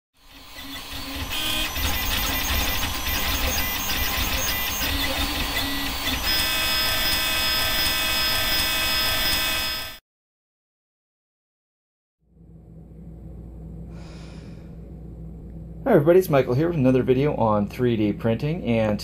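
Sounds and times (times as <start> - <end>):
high multi-tone whine: 0.2 - 10.0
stepper motors tones and clicks: 0.2 - 10.0
steady hum: 0.3 - 9.9, 12.3 - 19.0.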